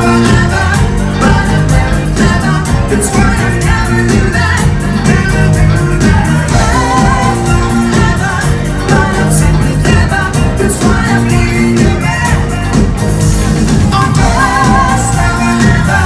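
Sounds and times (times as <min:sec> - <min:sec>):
live band playing pop song: 0:00.0 - 0:16.0
person singing: 0:00.0 - 0:16.0.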